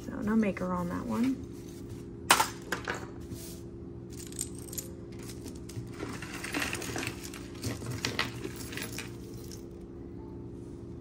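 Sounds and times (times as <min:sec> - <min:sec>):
jewelry clinking: 0:04.1 - 0:09.8.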